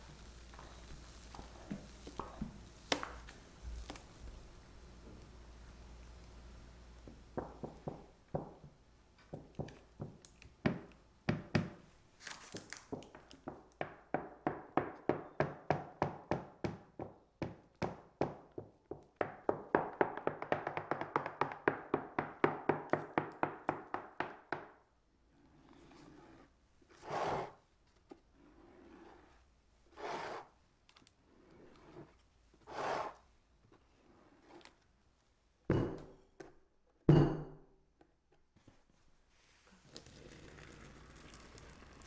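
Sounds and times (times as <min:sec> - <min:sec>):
bench scraper tapping batter: 0:13.5 - 0:24.7.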